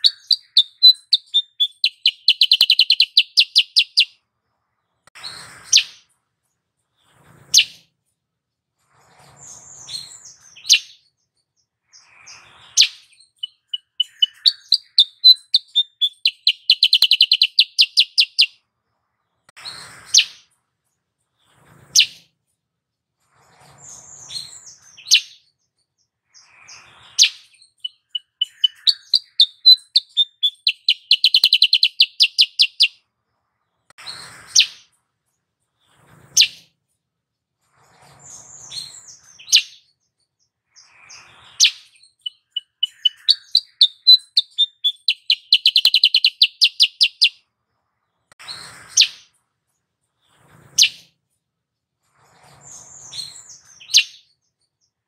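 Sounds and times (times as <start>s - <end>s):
bird rapid repeated notes: 0.0s - 4.1s, 12.8s - 18.5s, 27.2s - 32.9s, 41.6s - 47.3s
bird calls and whistles: 0.0s - 4.2s, 5.2s - 6.1s, 7.0s - 7.8s, 9.0s - 18.6s, 19.6s - 20.5s, 21.4s - 22.2s, 23.3s - 25.6s, 26.3s - 33.0s, 34.0s - 34.9s, 35.8s - 36.7s, 37.8s - 47.5s, 48.4s - 49.3s, 50.3s - 51.1s, 52.1s - 55.0s.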